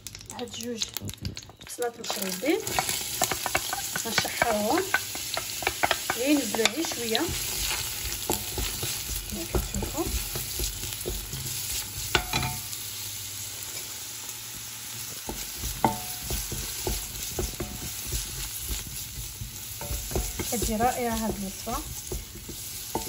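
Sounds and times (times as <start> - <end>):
onions sizzling in oil: 0.0 - 23.0
spatula scraping pot: 2.0 - 12.6, 15.3 - 23.0
spatula knocking against pot: 2.8 - 7.4, 15.3 - 23.0.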